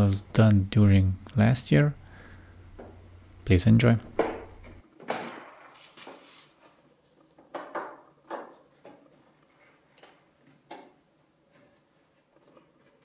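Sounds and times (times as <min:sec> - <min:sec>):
plastic knocks and rustles: 0:04.1 - 0:06.3, 0:07.3 - 0:11.0.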